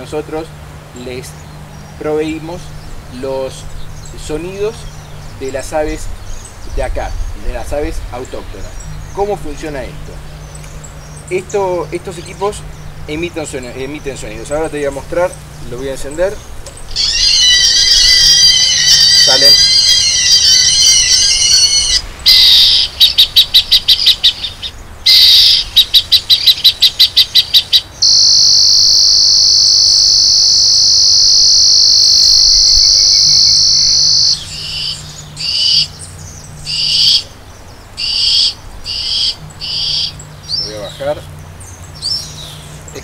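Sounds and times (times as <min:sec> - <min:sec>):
electronic warbling calls: 0:16.8 - 0:36.0, 0:36.6 - 0:37.4, 0:38.0 - 0:41.2
rapid high pulses: 0:16.8 - 0:41.3
steady high tone: 0:16.9 - 0:23.0, 0:28.0 - 0:35.9.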